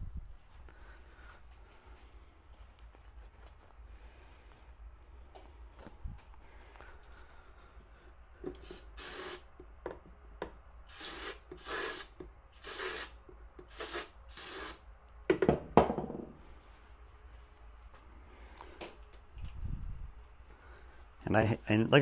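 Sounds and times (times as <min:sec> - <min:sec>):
aerosol can hissing bursts: 0:08.6 - 0:09.5, 0:10.9 - 0:14.8.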